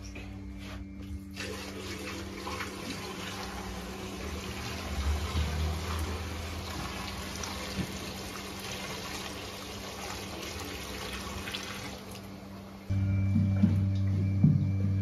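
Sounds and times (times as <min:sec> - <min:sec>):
low hum: 0:00.0 - 0:01.5, 0:12.2 - 0:15.0
milk pouring into a funnel: 0:01.4 - 0:12.3.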